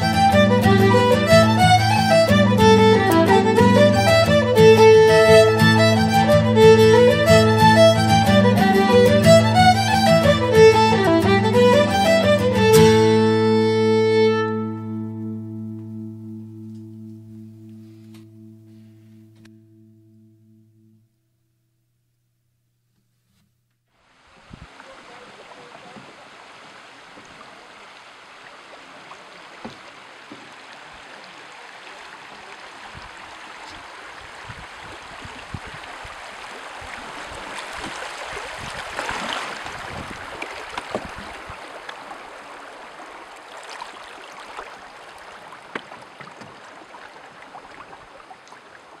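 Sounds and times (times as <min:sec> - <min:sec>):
water lapping against canoe hull: 0:24.2 - 0:49.0
small splashes and knocks: 0:24.6 - 0:49.0.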